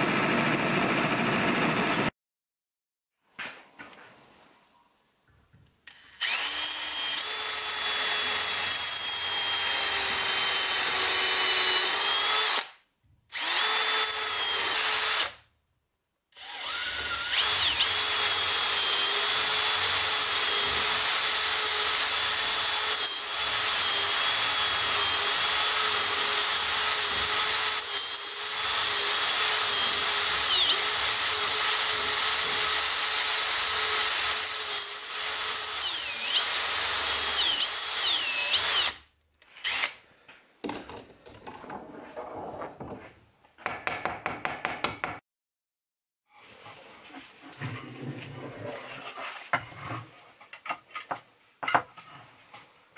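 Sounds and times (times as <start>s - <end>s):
electric drill boring into wood: 5.9s - 15.4s, 16.4s - 40.0s.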